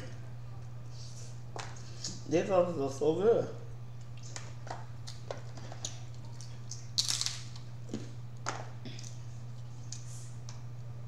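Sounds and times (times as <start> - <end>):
steady low hum: 0.0 - 11.0
crab shells cracking: 5.0 - 7.7.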